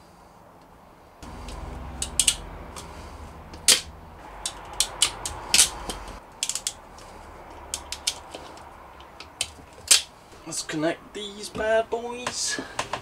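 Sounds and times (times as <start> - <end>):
low steady hum: 0.0 - 12.6
tool clicks and snaps: 1.5 - 2.4, 3.6 - 6.8, 7.7 - 10.1.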